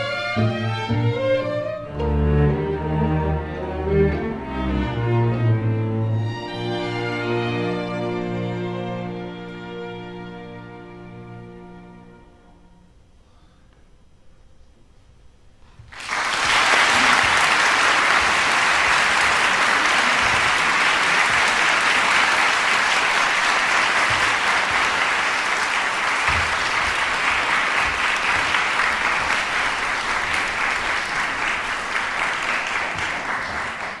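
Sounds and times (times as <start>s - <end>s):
audience applauding: 15.9s - 34.0s.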